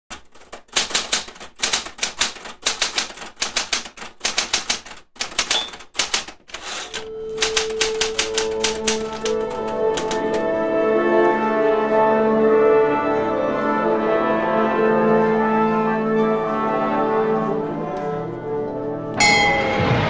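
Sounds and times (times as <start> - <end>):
rapid mechanical clicking: 0.1 - 10.4
music with held notes: 7.0 - 20.0
brief ring: 19.2 - 20.0.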